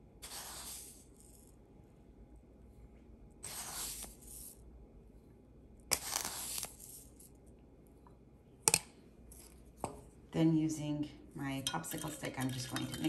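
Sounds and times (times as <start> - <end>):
sugar pouring into water: 11.7 - 13.0.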